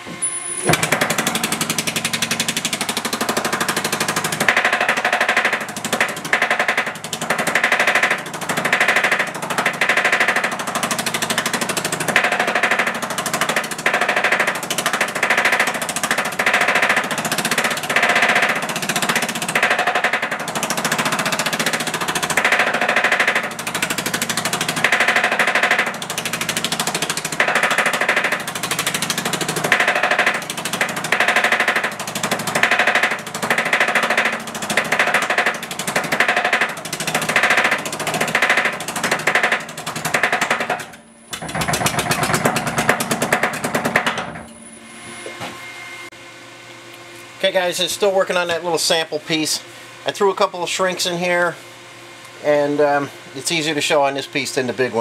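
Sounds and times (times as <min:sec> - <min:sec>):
power hammer hammering sheet metal: 0:00.6 - 0:44.5.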